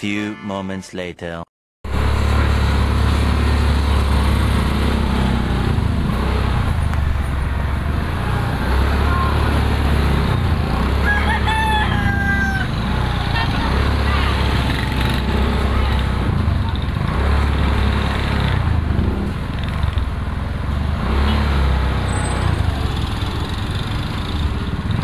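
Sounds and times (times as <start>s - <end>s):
motorcycle engine running: 1.9s - 25.0s
rooster crowing: 10.9s - 13.4s.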